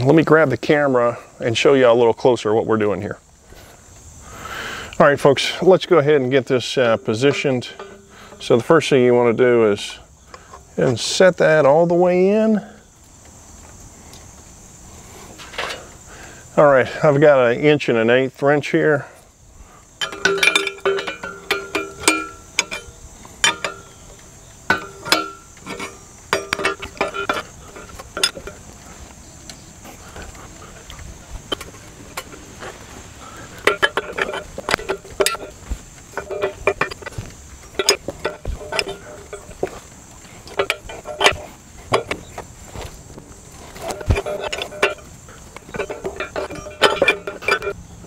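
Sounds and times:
wrench clicking on metal: 20.0 - 24.0.

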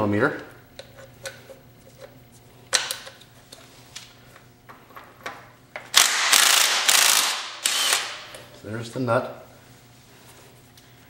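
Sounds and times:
fast loud ratcheting: 6.0 - 8.2.

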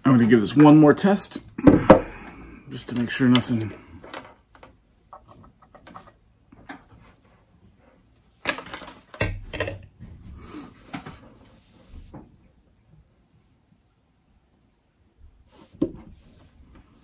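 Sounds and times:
hands handling cable and device: 8.4 - 9.8.

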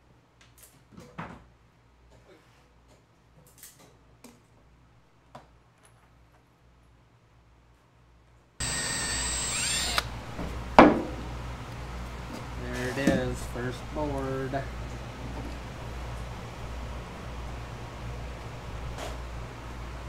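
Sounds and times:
cordless drill boring into wood: 8.6 - 10.2
boards and tools knocking: 10.4 - 11.2.

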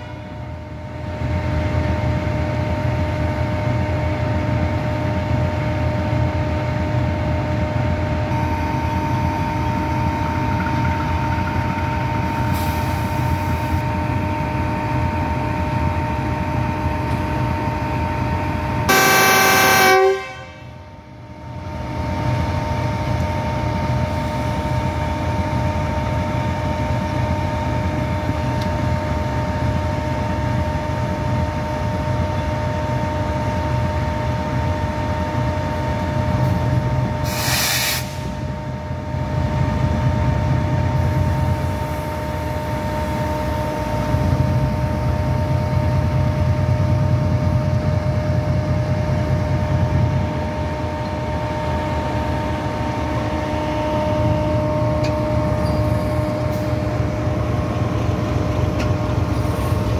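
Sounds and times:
locomotive engine idling with whine: 0.0 - 59.9
locomotive horn blast: 18.9 - 20.8
short air hiss: 37.2 - 38.4.

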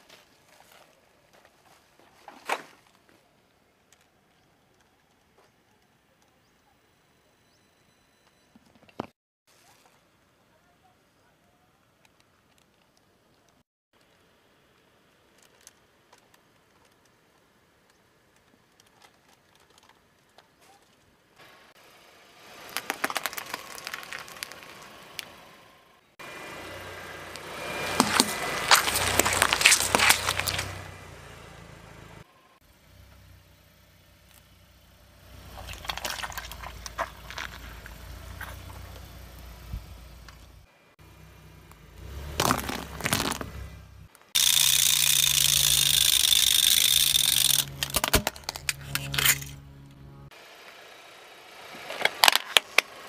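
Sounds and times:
car tyre crackling and squelching: 12.0 - 53.0
car engine idling: 21.4 - 51.8
tyre squashing lemons: 27.9 - 30.8.

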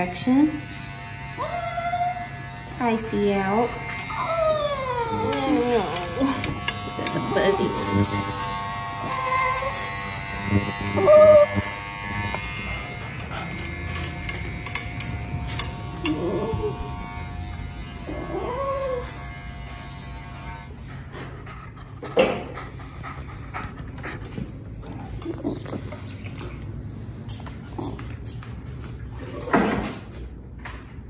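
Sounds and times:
electric dog clippers humming: 0.0 - 21.4
dog whining and yowling: 1.4 - 2.4, 4.0 - 8.0, 9.0 - 13.0, 16.0 - 16.8, 18.1 - 19.2.

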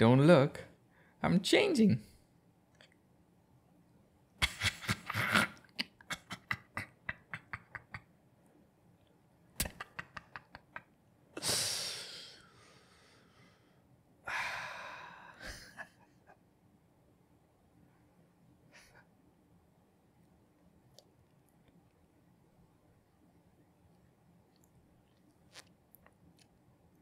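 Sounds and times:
man laughing hard: 4.4 - 8.1, 9.6 - 10.8, 15.4 - 16.4.

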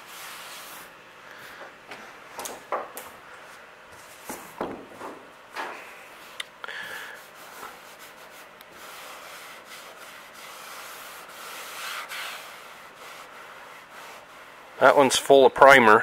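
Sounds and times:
paper towel rubbing: 0.0 - 0.9, 6.2 - 15.2.

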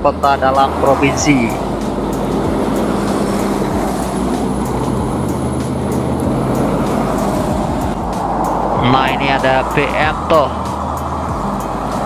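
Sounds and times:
engine running steadily: 0.0 - 12.0.

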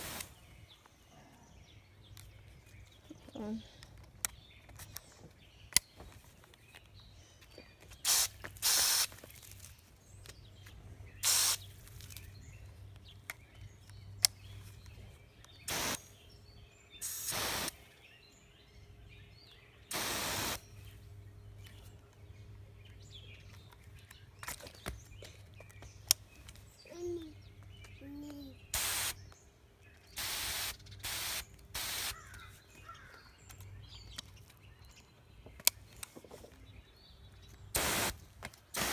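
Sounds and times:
hose nozzle spraying water: 0.0 - 0.3, 8.0 - 9.2, 11.2 - 11.6, 15.7 - 16.0, 17.0 - 17.8, 19.9 - 20.6, 28.8 - 29.2, 30.2 - 32.2, 37.8 - 38.2.

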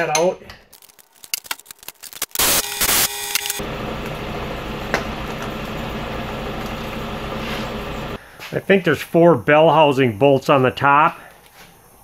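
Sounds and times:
power wrench running: 2.1 - 8.2.

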